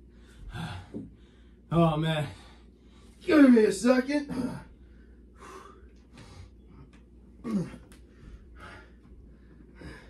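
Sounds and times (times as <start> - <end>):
man breathing hard: 4.5 - 6.9, 8.0 - 10.0
man grunting: 7.4 - 7.9.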